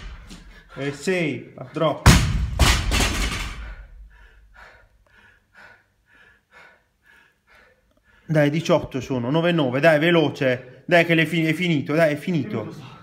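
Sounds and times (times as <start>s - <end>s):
person panting hard: 0.0s - 2.0s, 3.5s - 8.3s
barbell dropped on gym floor: 2.1s - 3.7s.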